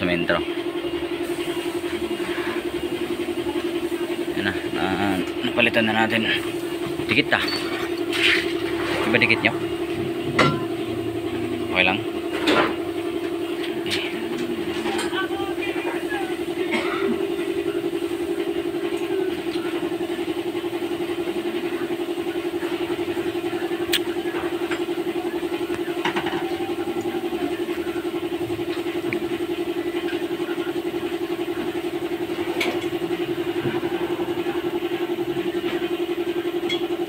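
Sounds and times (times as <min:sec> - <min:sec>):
engine idling: 0:00.0 - 0:37.0.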